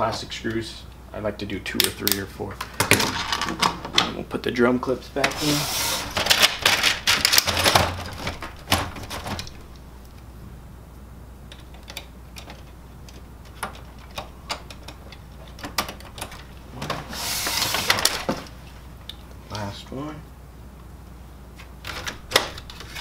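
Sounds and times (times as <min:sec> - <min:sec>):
plastic part sliding and scraping: 0:05.3 - 0:07.0, 0:17.0 - 0:18.4
plastic printer parts clicking: 0:06.1 - 0:09.6, 0:11.5 - 0:16.6.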